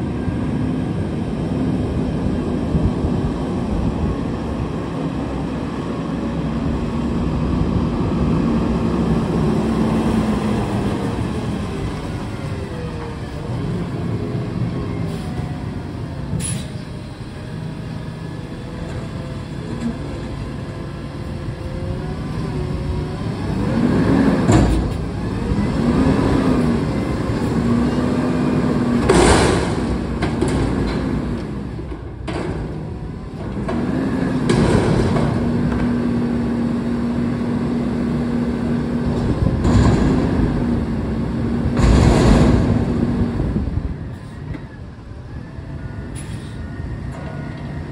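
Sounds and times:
garbage truck engine revving: 17.4 - 44.0.

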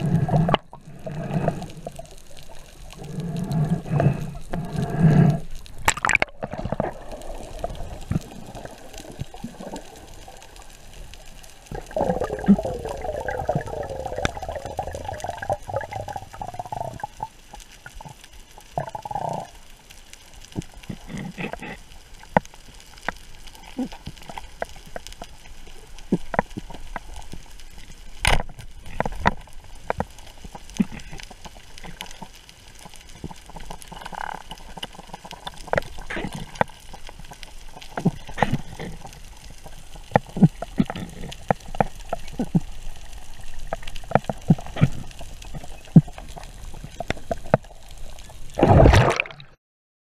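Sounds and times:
underwater clicks and knocks: 5.8 - 7.0.

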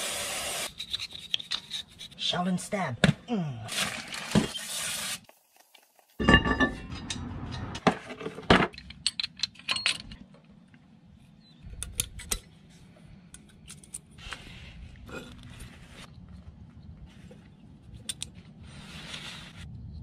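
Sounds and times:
metal tools clinking: 6.2 - 7.8, 8.7 - 10.2.

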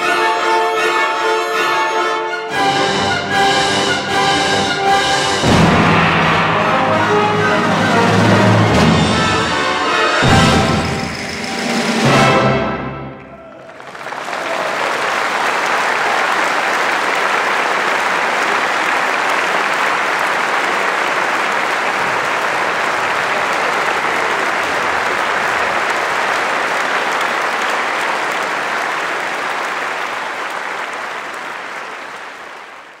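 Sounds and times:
audience applauding: 13.0 - 33.0.

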